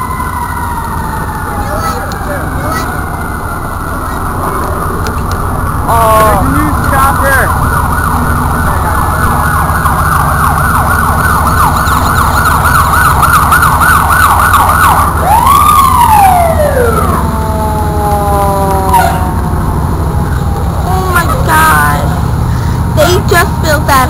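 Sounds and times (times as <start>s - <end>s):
fire engine siren: 0.0s - 24.0s
low rumble: 2.2s - 24.0s
multi-tone horn blast: 18.9s - 19.5s.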